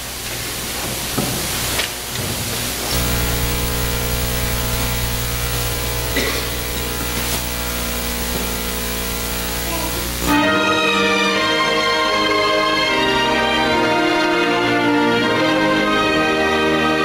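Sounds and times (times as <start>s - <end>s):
low electrical hum: 0.0s - 10.4s
loud hiss: 2.4s - 12.1s
music: 10.2s - 17.0s.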